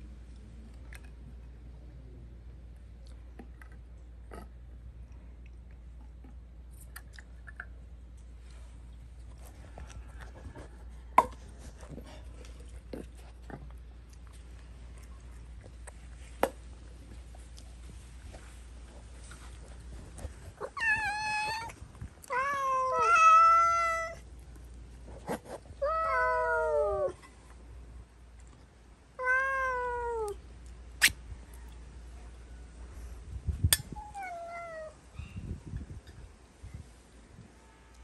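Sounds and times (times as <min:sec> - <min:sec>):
cats meowing: 0:20.6 - 0:24.2, 0:25.8 - 0:27.2, 0:29.2 - 0:30.4, 0:34.0 - 0:35.0.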